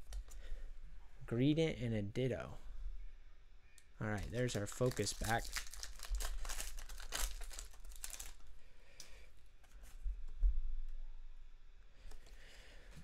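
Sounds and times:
foil wrapper tearing and crinkling: 0:04.2 - 0:08.5.

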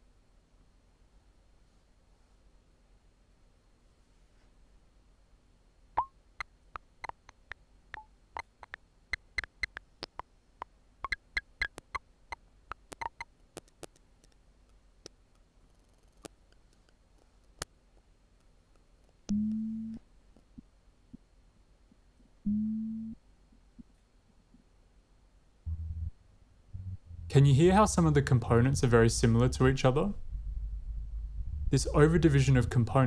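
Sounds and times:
thin clicks and ticks: 0:12.7 - 0:19.3
short low pitched tone: 0:25.7 - 0:33.0.

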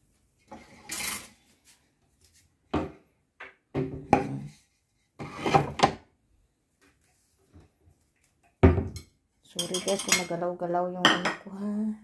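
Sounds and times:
scrape of dishes: 0:00.5 - 0:01.7, 0:05.2 - 0:05.8
dishes knocking and clinking: 0:02.7 - 0:04.5, 0:08.6 - 0:10.4, 0:11.0 - 0:11.5.

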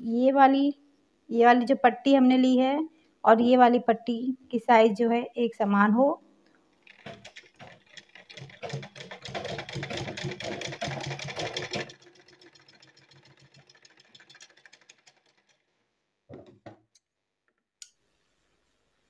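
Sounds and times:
sewing machine stitching: 0:06.8 - 0:15.7.

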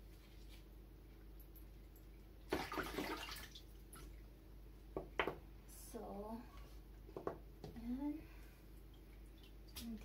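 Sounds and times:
water sloshing in plastic basin: 0:02.4 - 0:04.2.

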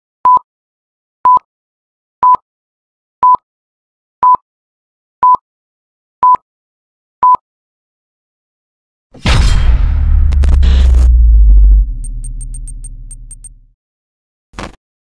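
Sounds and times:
short electronic beeps: 0:11.9 - 0:13.6.

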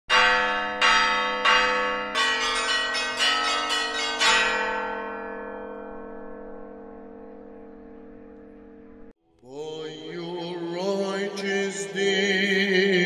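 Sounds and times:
church bells ringing: 0:00.1 - 0:09.1.

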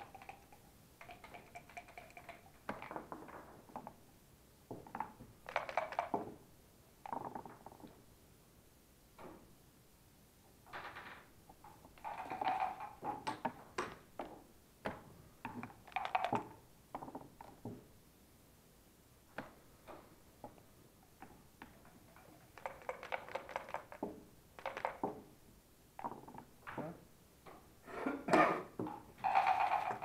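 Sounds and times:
dice rattling in cup: 0:00.0 - 0:03.2, 0:05.4 - 0:06.2, 0:11.9 - 0:13.0, 0:15.6 - 0:17.1, 0:21.7 - 0:24.0, 0:24.6 - 0:25.0, 0:29.2 - 0:30.0
checkers clacking on board: 0:00.0 - 0:04.0, 0:04.9 - 0:06.4, 0:10.7 - 0:14.0, 0:15.5 - 0:17.6, 0:21.6 - 0:25.2, 0:29.2 - 0:30.0.

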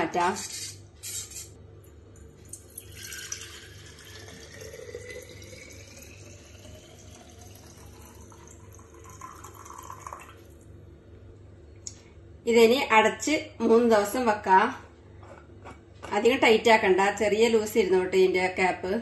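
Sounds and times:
liquid pouring into a glass jar: 0:02.1 - 0:10.7.

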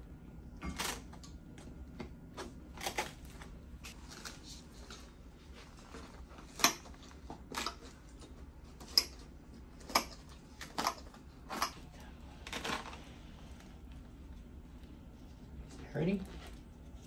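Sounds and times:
faint low room hum: 0:00.0 - 0:17.0.

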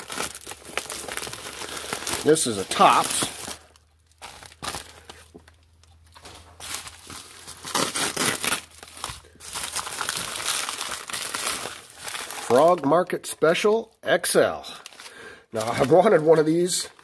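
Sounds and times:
plastic envelope crinkling: 0:00.0 - 0:13.1, 0:14.7 - 0:17.0.

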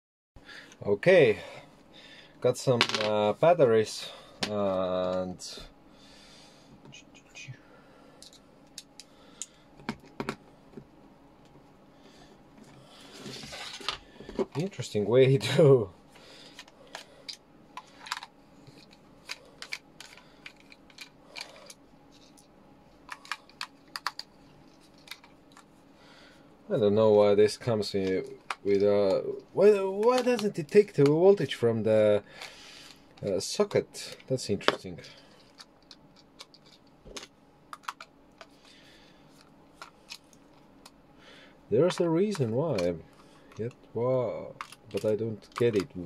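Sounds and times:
plastic casing handled: 0:34.1 - 0:38.6, 0:44.5 - 0:46.0.

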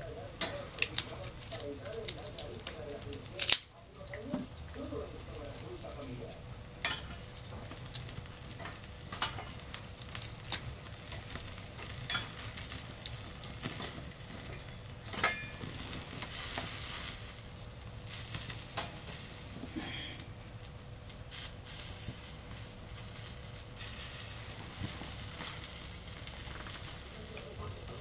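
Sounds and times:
sausages sizzling on grill: 0:00.0 - 0:28.0
clicks and knocks on grill: 0:06.8 - 0:16.8, 0:18.3 - 0:19.2.

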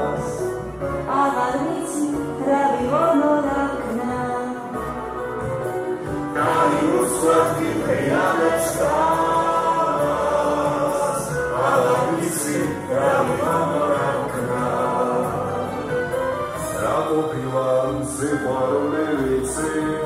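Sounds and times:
woman and man singing: 0:06.3 - 0:20.0.

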